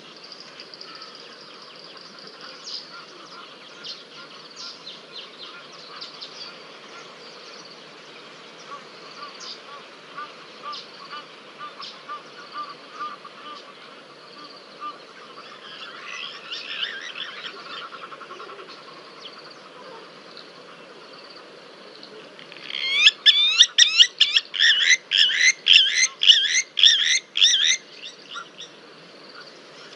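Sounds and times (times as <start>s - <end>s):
wild animal calling: 22.6s - 27.8s.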